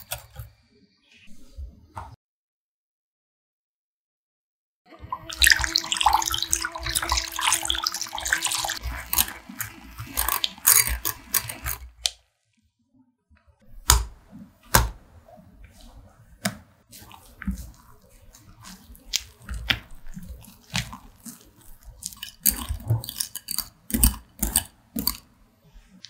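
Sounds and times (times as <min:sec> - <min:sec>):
spatula scraping and clicking: 0:00.0 - 0:00.5, 0:07.2 - 0:12.2, 0:13.8 - 0:26.0
whisk rattling in glass bowl: 0:05.3 - 0:12.0, 0:18.6 - 0:25.2.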